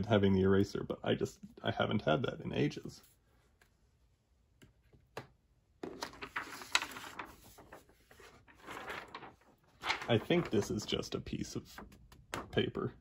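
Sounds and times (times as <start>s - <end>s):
thin paper rustling: 5.8s - 11.0s.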